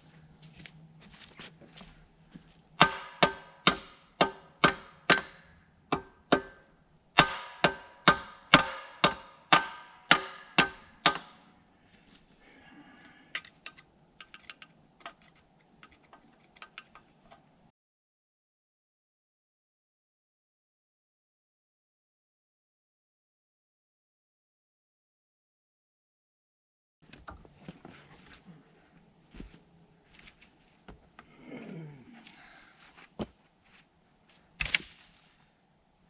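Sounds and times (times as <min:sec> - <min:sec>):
hammer striking steel: 0:02.8 - 0:11.5.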